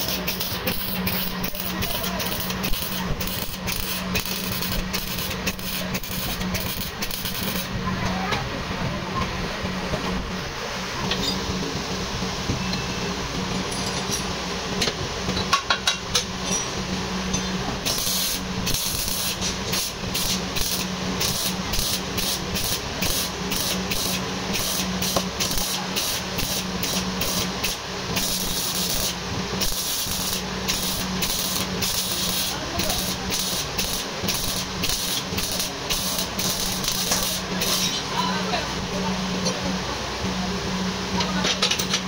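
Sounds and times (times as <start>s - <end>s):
welding arc crackling and hissing: 0.0s - 8.4s, 16.3s - 39.1s.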